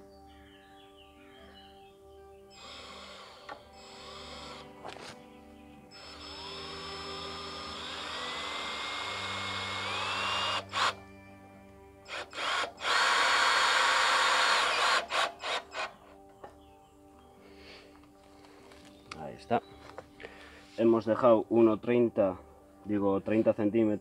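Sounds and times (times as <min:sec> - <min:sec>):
cordless drill motor whine: 0:02.6 - 0:05.2, 0:05.9 - 0:11.1, 0:12.1 - 0:16.2.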